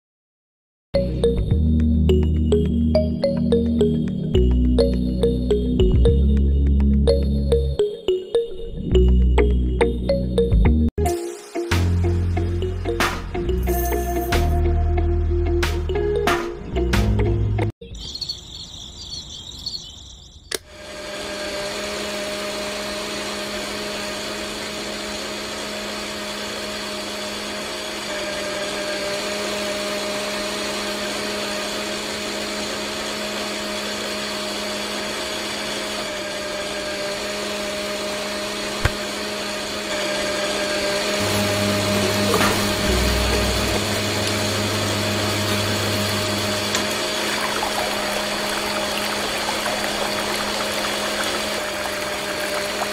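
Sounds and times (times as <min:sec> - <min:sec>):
electric motor humming: 0:20.5 - 0:52.9.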